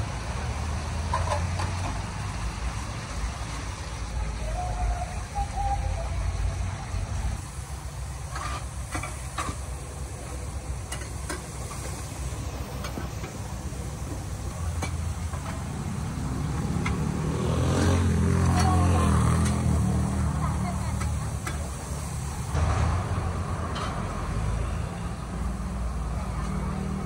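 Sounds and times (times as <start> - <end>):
street traffic rumble: 0.0 - 27.0
metal spatula scraping a wok: 8.3 - 9.5.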